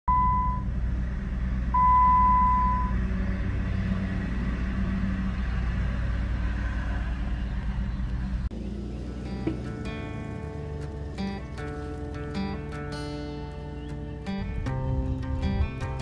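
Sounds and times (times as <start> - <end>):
car engine idling: 0.1 - 16.0.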